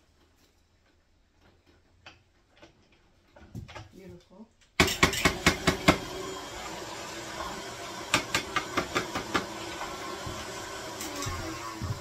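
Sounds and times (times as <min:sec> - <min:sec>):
stand mixer motor hum: 0:05.6 - 0:12.0.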